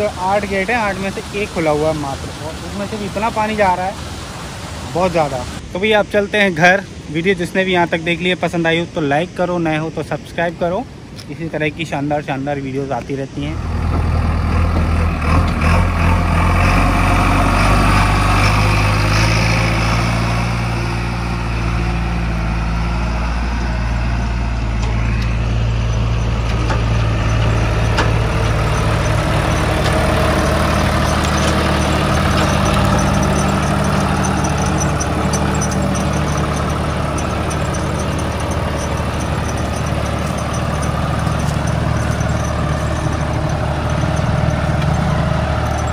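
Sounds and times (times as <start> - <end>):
diesel engines running: 13.0 - 45.9.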